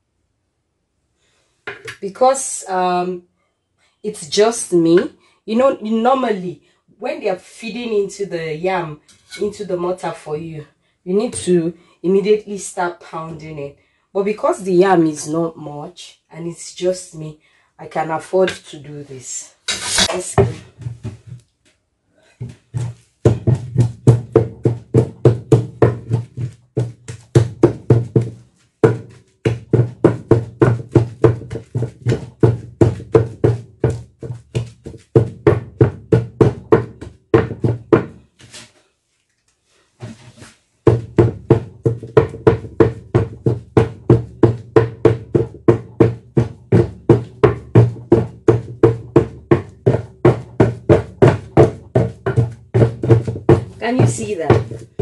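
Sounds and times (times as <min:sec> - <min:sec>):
wooden pestle pounding in mortar: 0:19.7 - 0:21.4, 0:22.4 - 0:38.3, 0:40.8 - 0:55.0.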